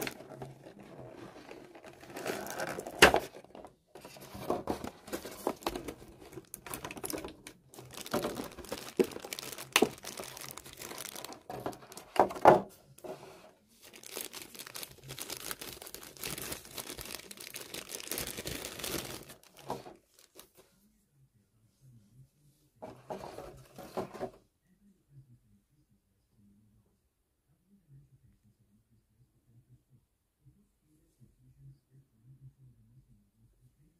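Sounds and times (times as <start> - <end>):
plastic bag crinkling: 0.0 - 12.5, 13.8 - 20.5.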